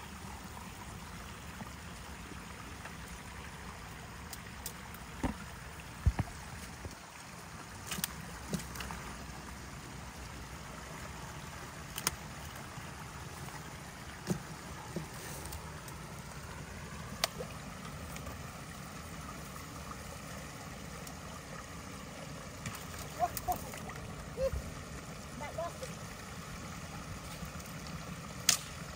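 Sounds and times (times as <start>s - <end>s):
water rushing through dam: 0.0s - 28.9s
sticks cracking: 11.9s - 12.2s, 28.4s - 28.8s.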